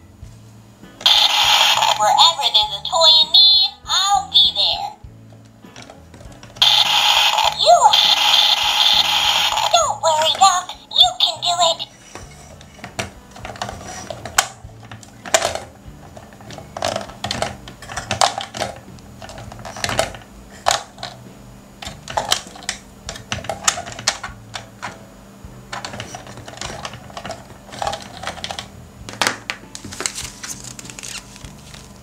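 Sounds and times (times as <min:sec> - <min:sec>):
toy doors clicking: 0:01.1 - 0:03.7, 0:06.6 - 0:11.9
plastic pieces tapping: 0:12.2 - 0:21.2, 0:21.8 - 0:25.0, 0:25.7 - 0:31.1.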